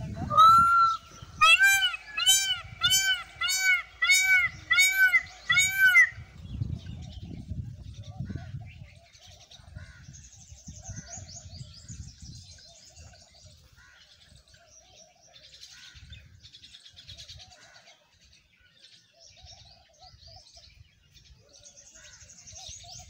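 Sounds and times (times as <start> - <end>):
low warbling bird call: 0.0 - 9.2
songbirds chirping and twittering: 0.0 - 23.0.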